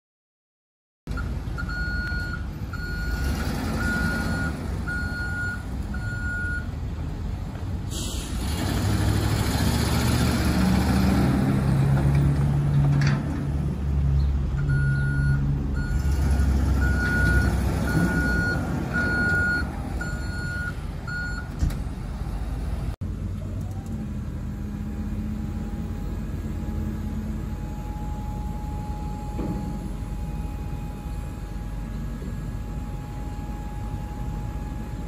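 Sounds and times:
truck backup alarm beeping: 0:01.1 - 0:06.8, 0:14.6 - 0:21.6, 0:25.5 - 0:35.0
truck engine: 0:01.1 - 0:35.0.

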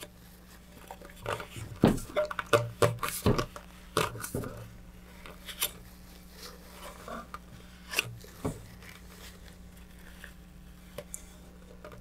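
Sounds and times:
soft handling noises: 0:00.0 - 0:12.0.

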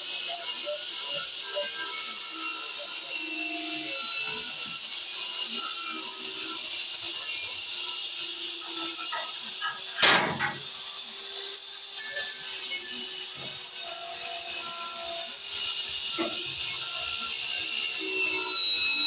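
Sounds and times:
wire brush grinder on steel: 0:00.0 - 0:19.0.

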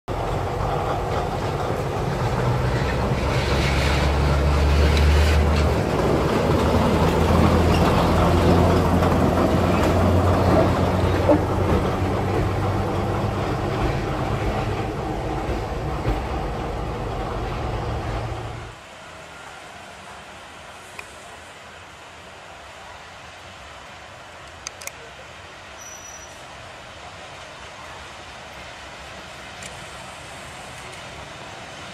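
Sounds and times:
wheels clicking over rails: 0:00.1 - 0:18.2
diesel locomotive engine drone: 0:00.1 - 0:25.8, 0:26.5 - 0:31.9.

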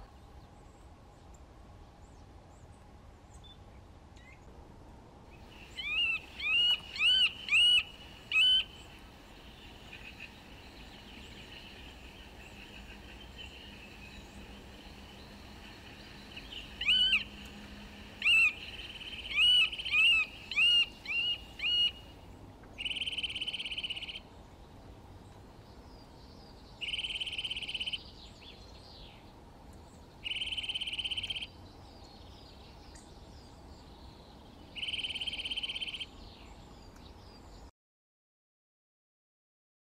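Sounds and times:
bird calling: 0:05.4 - 0:24.2, 0:26.8 - 0:28.1, 0:30.2 - 0:31.6, 0:34.8 - 0:36.1.

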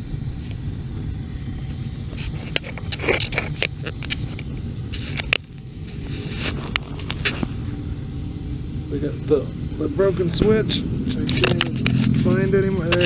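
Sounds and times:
gas burner rumbling: 0:00.0 - 0:13.0
scraping and clicks: 0:02.2 - 0:07.5.

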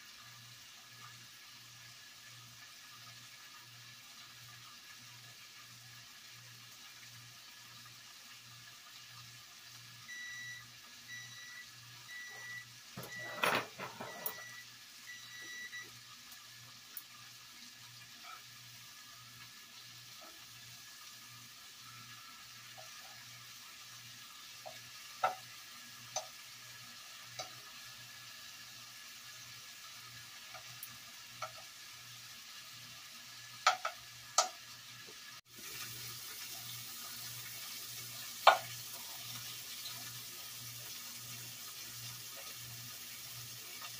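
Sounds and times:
meat sizzling in butter: 0:00.0 - 0:43.9
electronic beeping: 0:10.1 - 0:15.9
metal utensil clicking on pan: 0:33.6 - 0:34.6, 0:38.4 - 0:38.8.

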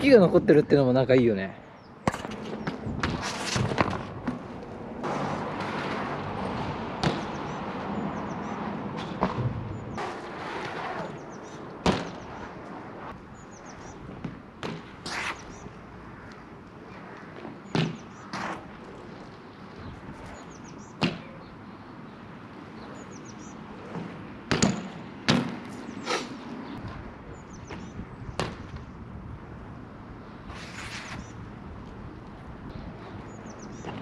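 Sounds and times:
bike landing impacts: 0:07.0 - 0:07.4, 0:11.8 - 0:12.2, 0:23.9 - 0:25.8.

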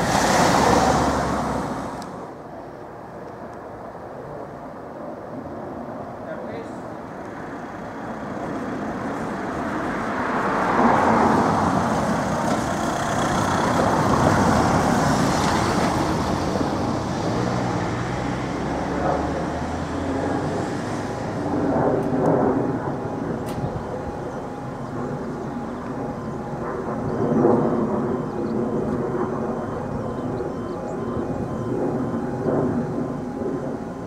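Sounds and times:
van driving past: 0:00.0 - 0:02.3, 0:07.7 - 0:21.7.

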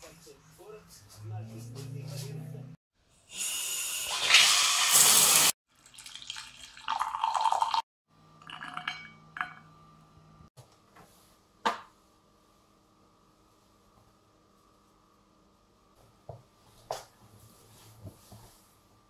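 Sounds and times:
water spraying from shower head: 0:03.4 - 0:05.6.

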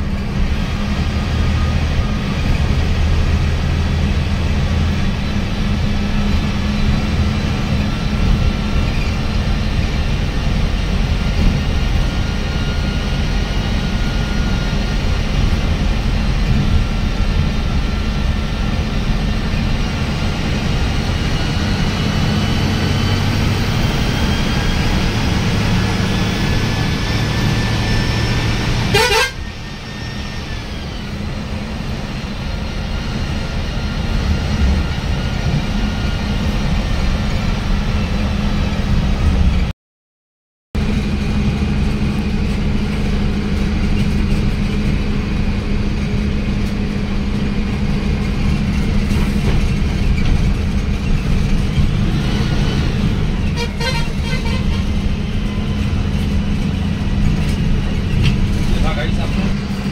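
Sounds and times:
bus engine and tyre drone: 0:00.0 - 0:39.7, 0:40.8 - 0:59.9
vehicle horn: 0:28.8 - 0:29.7, 0:53.4 - 0:55.0.

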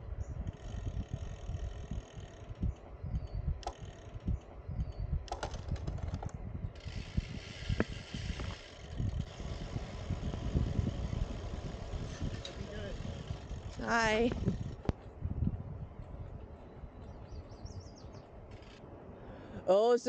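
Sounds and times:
wind buffeting microphone: 0:00.0 - 0:19.2
bike freewheel ticking: 0:00.4 - 0:15.0.

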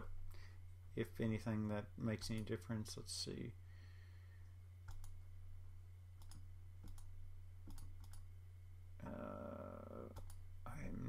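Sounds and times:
low electrical hum: 0:00.0 - 0:11.0
computer mouse clicking: 0:04.9 - 0:05.2, 0:06.2 - 0:08.3, 0:10.2 - 0:10.4.

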